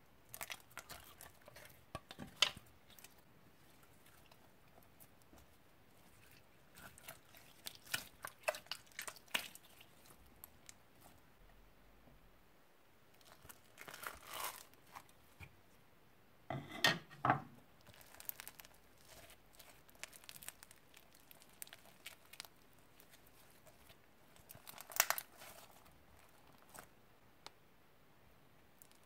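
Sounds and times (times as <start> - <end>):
dried slime crackling and tearing: 0.2 - 11.2, 13.1 - 15.4, 17.8 - 26.9, 28.8 - 29.0.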